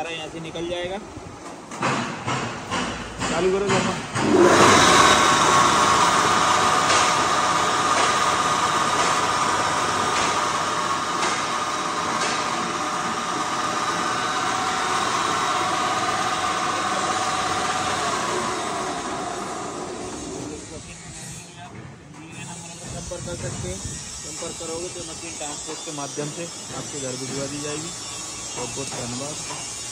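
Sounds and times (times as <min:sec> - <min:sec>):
electric motor driving mill: 0:02.2 - 0:21.4, 0:22.4 - 0:29.9.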